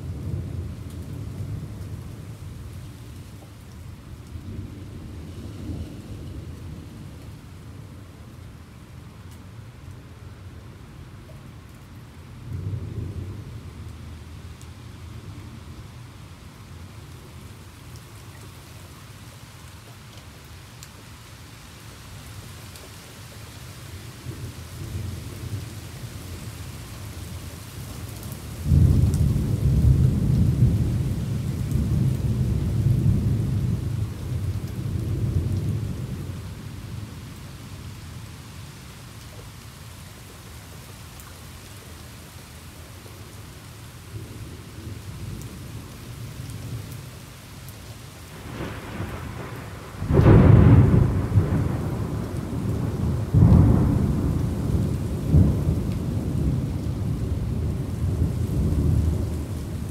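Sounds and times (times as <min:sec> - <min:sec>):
steady rain: 0:00.0 - 0:59.9
thunder rumbling: 0:28.6 - 0:37.1, 0:48.3 - 0:59.9.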